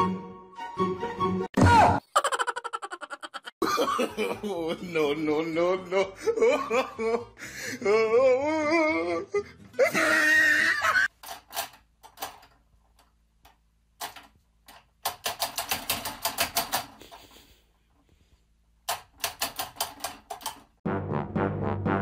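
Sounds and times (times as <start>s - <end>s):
man crying out: 4.3s - 11.1s.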